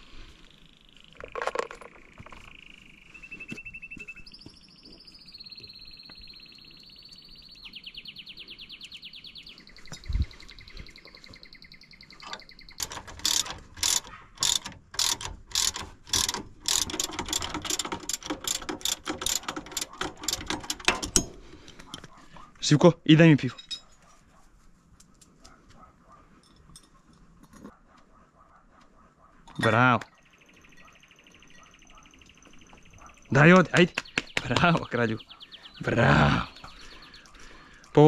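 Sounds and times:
ratchet wrench clicking: 12.8s - 21.4s.

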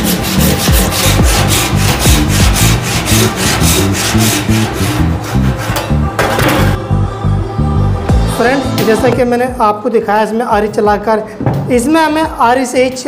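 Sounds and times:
hand saw cutting wood: 0.0s - 6.8s.

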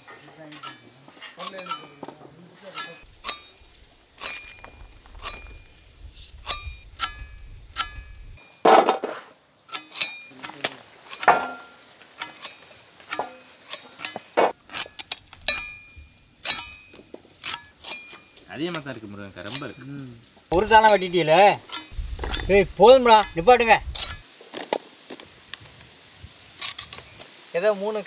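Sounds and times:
utensils clinking on metal vessels: 0.0s - 3.6s, 9.7s - 14.8s, 15.4s - 24.3s.

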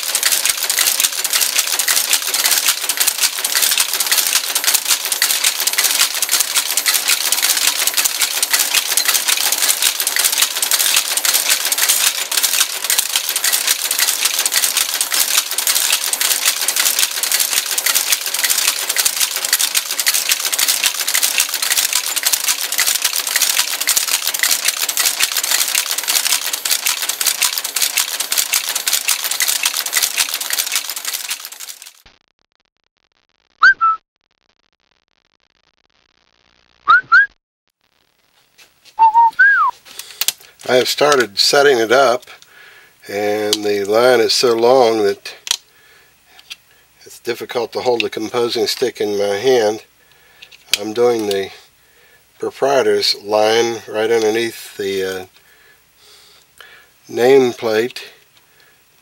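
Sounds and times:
rapid mechanical clatter: 0.0s - 32.1s, 39.9s - 45.6s, 46.3s - 51.6s, 56.6s - 58.4s.

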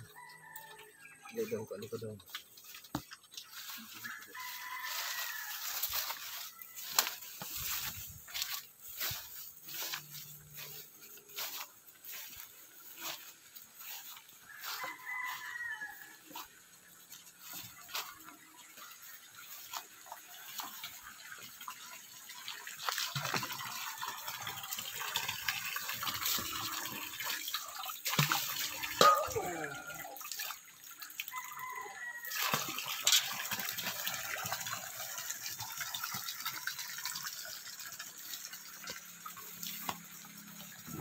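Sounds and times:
footsteps through grass and leaves: 2.2s - 21.5s, 22.3s - 24.0s
rooster crowing faintly: 3.7s - 7.8s, 13.8s - 16.5s.

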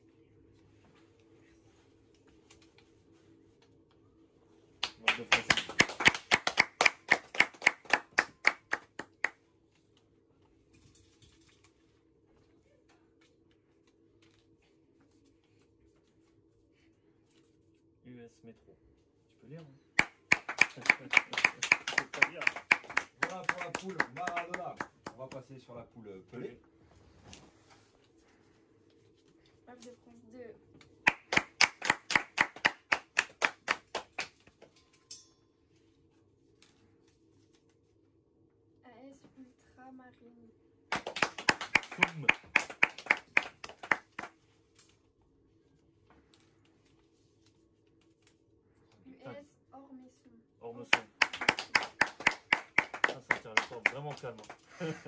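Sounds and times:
faint steady hum: 0.0s - 55.0s
hand clapping: 4.8s - 9.4s, 20.0s - 25.6s, 31.0s - 34.8s, 40.9s - 44.5s, 50.8s - 54.8s
soft rustle: 26.7s - 30.4s.

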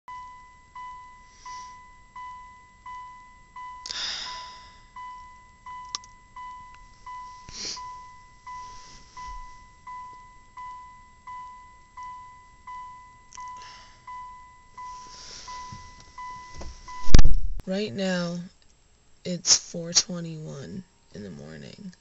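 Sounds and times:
electronic alarm chiming: 0.1s - 17.6s
loud breathy sighs: 3.9s - 5.0s.

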